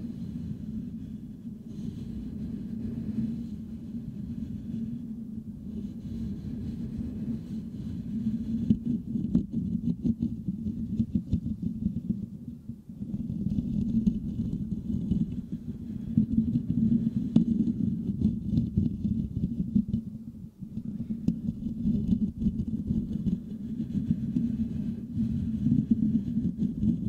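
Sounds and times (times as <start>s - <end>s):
fingertips scratching microphone grille: 6.2s - 12.3s, 13.1s - 20.1s, 20.7s - 27.0s.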